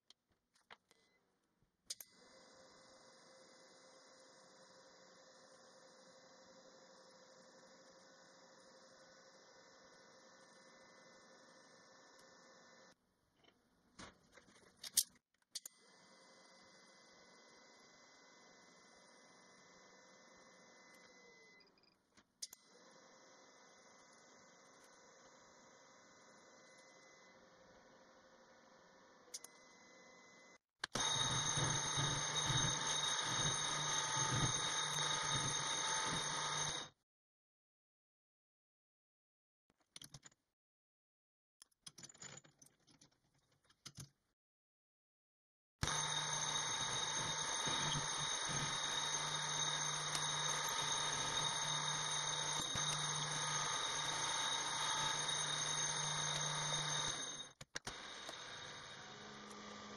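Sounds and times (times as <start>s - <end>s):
high ringing tones: 31.0s - 36.9s, 45.8s - 57.5s.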